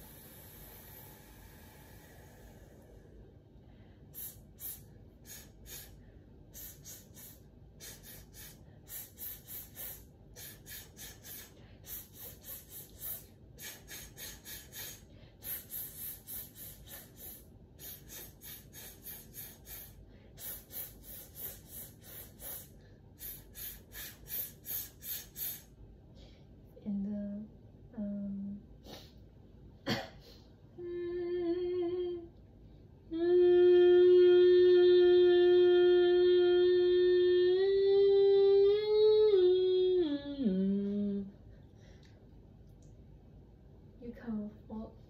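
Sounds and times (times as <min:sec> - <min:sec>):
hissing puffs of breath: 0:00.0 - 0:26.5.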